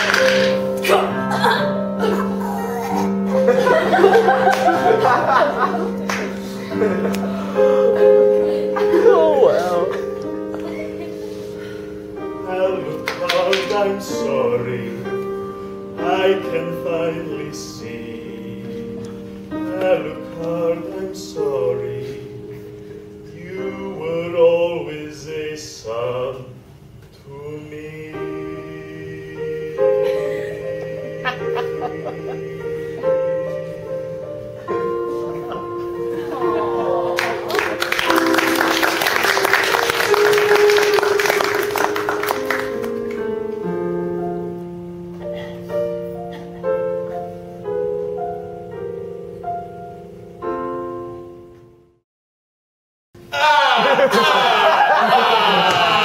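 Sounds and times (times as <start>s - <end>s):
instrumental accompaniment: 0.0s - 23.9s, 28.1s - 52.0s
piano music: 0.0s - 26.6s, 27.2s - 52.0s
audience applause: 4.0s - 6.4s, 36.8s - 43.2s, 53.8s - 56.0s
man singing: 12.3s - 15.4s, 16.0s - 22.6s, 23.2s - 34.3s.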